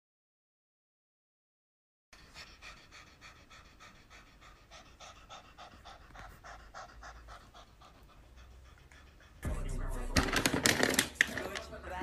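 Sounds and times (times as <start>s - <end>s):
cat panting: 2.2s - 9.5s.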